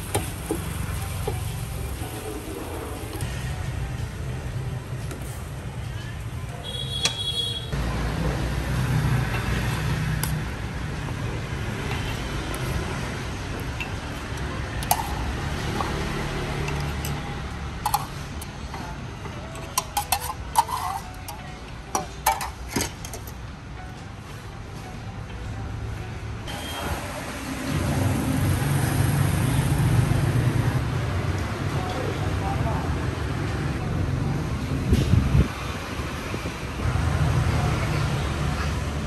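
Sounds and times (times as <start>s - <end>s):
metal ladle clinking ceramic pots: 19.6s - 23.3s.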